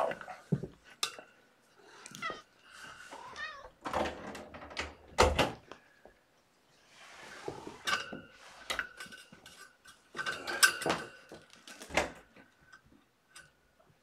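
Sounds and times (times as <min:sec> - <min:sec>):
cat meowing: 0:03.1 - 0:03.8.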